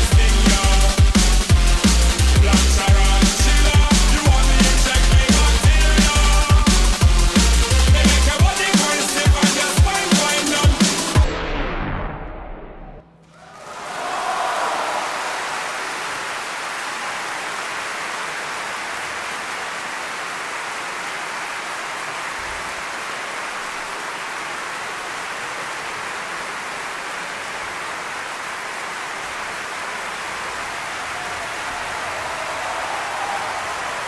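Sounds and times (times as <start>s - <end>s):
audience applauding: 13.3s - 34.0s.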